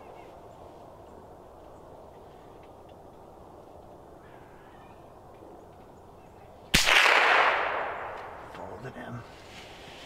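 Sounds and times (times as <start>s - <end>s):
rifle shot: 6.7s - 8.4s.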